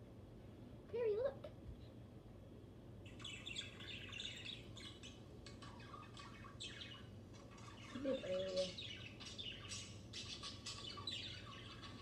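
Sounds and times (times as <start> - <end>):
budgerigar chirping and warbling: 3.1 - 12.0.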